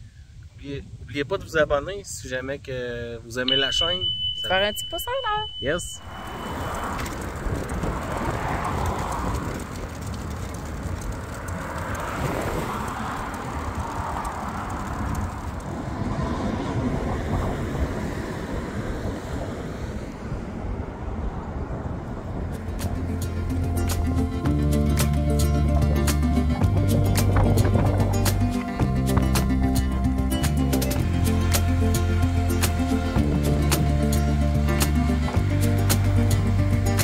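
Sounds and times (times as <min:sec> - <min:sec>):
wind buffeting microphone: 0:06.0 - 0:24.5, 0:26.6 - 0:30.3.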